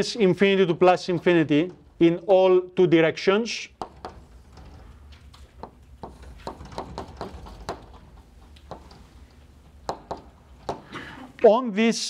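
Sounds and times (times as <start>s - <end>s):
low room hum: 0.0s - 12.0s
chalk tapping and scraping: 5.4s - 10.9s.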